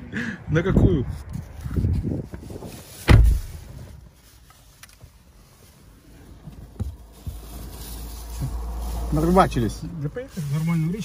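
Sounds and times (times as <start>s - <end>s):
car engine and road rumble: 0.0s - 11.0s
sharp thump: 3.0s - 3.6s.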